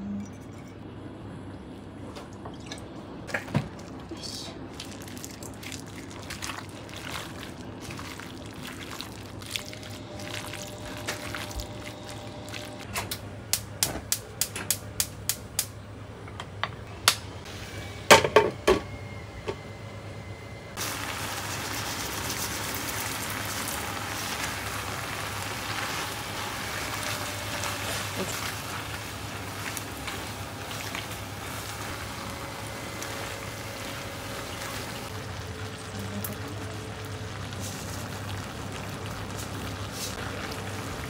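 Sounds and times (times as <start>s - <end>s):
water running: 4.7s - 12.8s, 20.8s - 41.0s.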